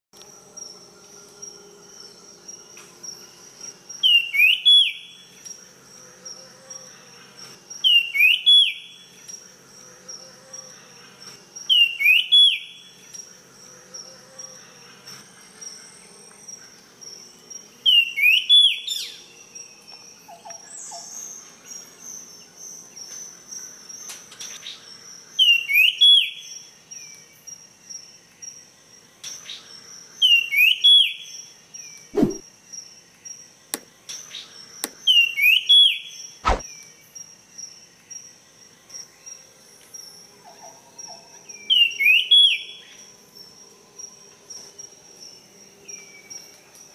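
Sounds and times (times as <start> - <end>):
songbird whistling song: 4.0 - 5.2, 7.8 - 9.0, 11.7 - 12.8, 17.8 - 21.8, 25.4 - 27.1, 30.2 - 32.4, 34.3 - 36.9, 40.5 - 43.0.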